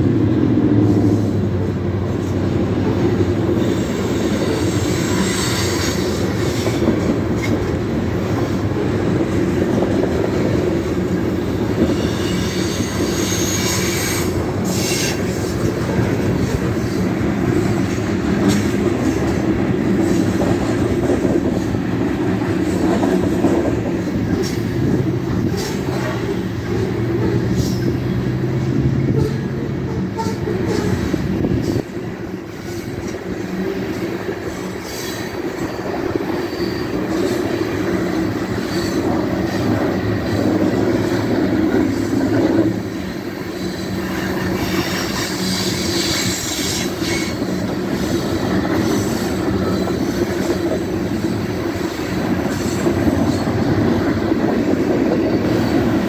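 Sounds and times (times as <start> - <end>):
train wheels rumbling on rails: 0.0 - 56.0
wheel squeal: 3.6 - 6.8, 11.8 - 17.0, 34.5 - 37.6.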